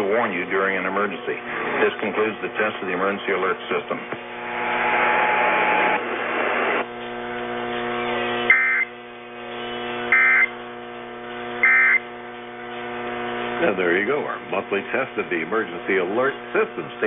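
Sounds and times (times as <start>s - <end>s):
radio hiss: 0.0s - 17.0s
steady electrical hum: 0.0s - 17.0s
high-pitched digital squawks: 8.5s - 8.9s, 10.1s - 10.5s, 11.6s - 12.0s.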